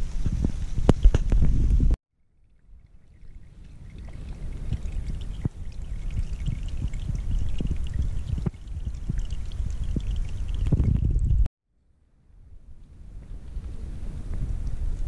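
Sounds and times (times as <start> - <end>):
rain drops plopping on a pond: 2.4 - 10.7.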